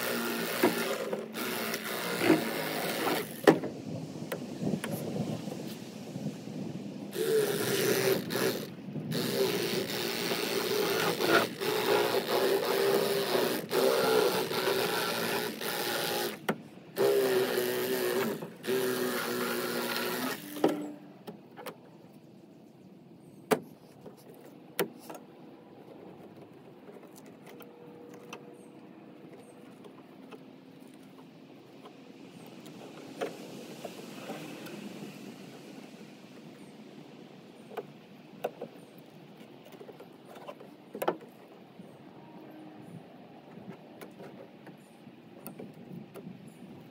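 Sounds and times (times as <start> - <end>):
electric knife motor buzzing: 0.0 - 3.5, 7.2 - 16.4, 17.0 - 21.0.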